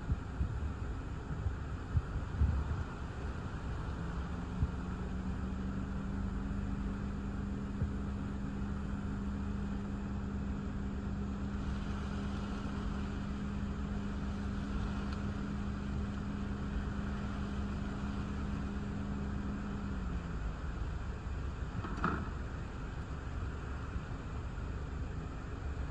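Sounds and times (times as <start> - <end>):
car hum: 0.0 - 25.9
wind and rain: 0.0 - 25.9.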